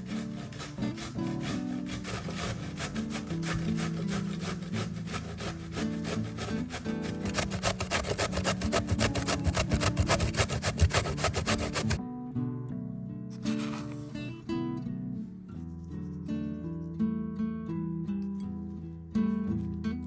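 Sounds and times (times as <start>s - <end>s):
kitchen tool scraping food: 0.0s - 12.0s, 13.4s - 14.1s
soft background music: 8.6s - 20.0s.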